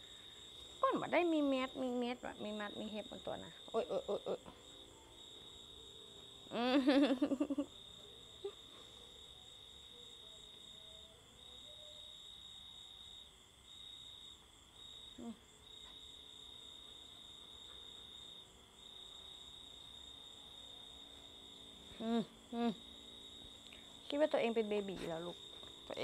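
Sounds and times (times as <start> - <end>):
crickets chirping: 0.0 - 26.0.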